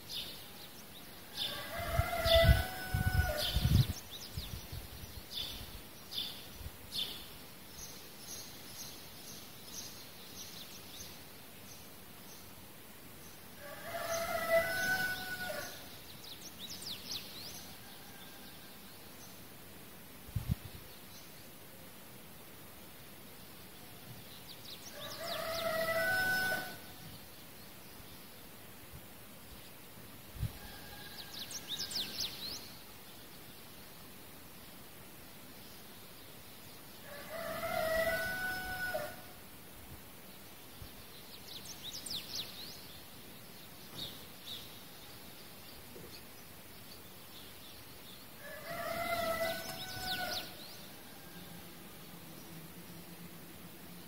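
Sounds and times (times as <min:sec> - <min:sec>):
steady background hiss: 0:00.0 - 0:54.0
rooster crowing: 0:01.3 - 0:03.8, 0:13.6 - 0:15.9, 0:24.9 - 0:27.0, 0:30.5 - 0:32.1, 0:37.0 - 0:39.3, 0:48.4 - 0:51.9.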